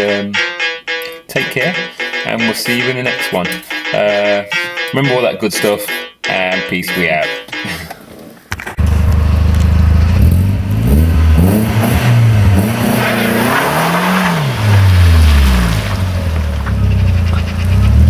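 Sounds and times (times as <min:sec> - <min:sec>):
car engine revving: 0:08.8 - 0:18.0.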